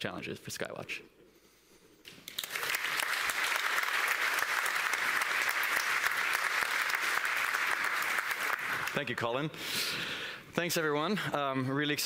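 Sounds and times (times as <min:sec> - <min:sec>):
audience applauding: 0:02.2 - 0:09.2.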